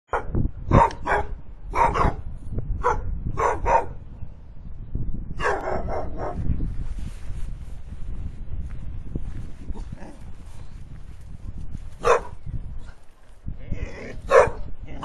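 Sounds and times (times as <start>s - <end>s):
dog barking: 0.1s - 2.2s, 2.8s - 4.0s, 5.4s - 6.4s, 12.0s - 12.4s, 14.2s - 14.7s.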